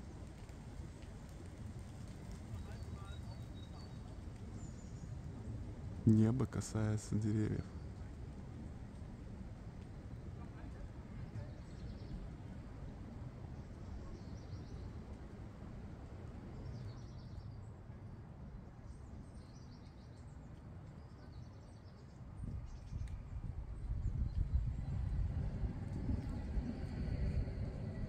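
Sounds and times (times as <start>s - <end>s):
low rumble: 23.2s - 28.0s.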